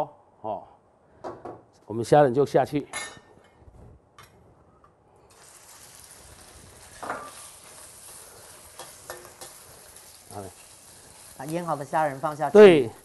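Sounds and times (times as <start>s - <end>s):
shrimp sizzling in oil: 5.3s - 13.0s.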